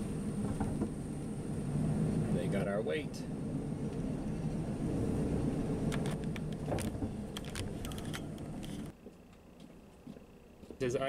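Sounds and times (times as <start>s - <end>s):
sharp clicks and rattles: 5.8s - 9.4s.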